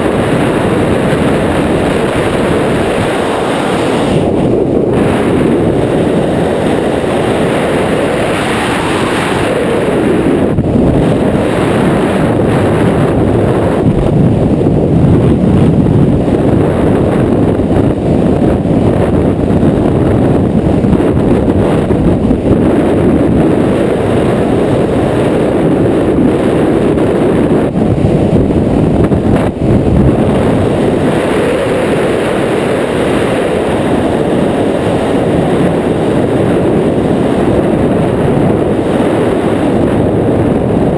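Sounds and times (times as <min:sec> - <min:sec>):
wind roar over microphone: 0:00.0 - 0:40.9.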